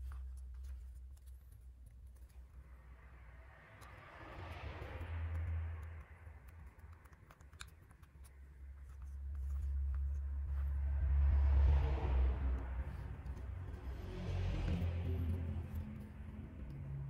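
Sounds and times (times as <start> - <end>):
low rumble: 8.8 - 17.0.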